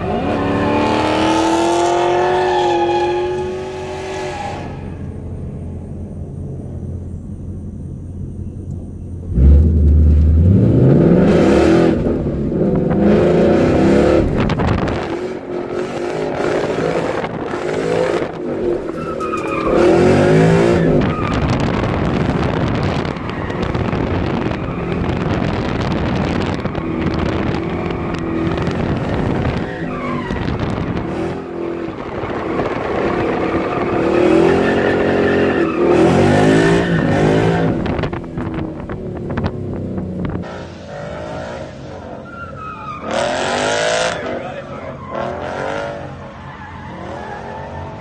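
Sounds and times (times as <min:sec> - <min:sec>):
car engine revving: 0:00.0 - 0:48.0
tyres squealing: 0:18.6 - 0:21.6.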